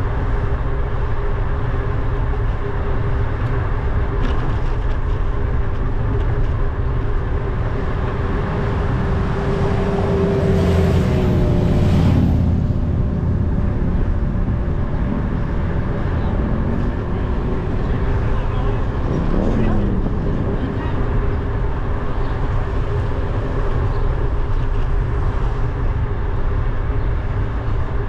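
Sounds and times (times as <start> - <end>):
road and traffic noise: 0.0 - 28.0
wind rumble on microphone: 0.0 - 28.0
motorcycles passing: 6.0 - 25.6.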